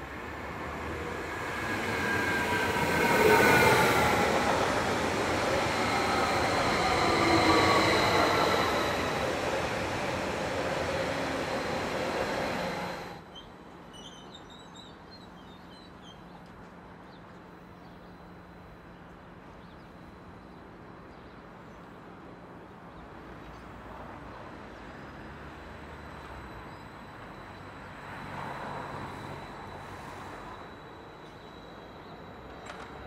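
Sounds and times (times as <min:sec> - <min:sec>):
electric train humming: 0:00.0 - 0:13.2, 0:25.7 - 0:33.0
bird chirps: 0:13.3 - 0:16.4.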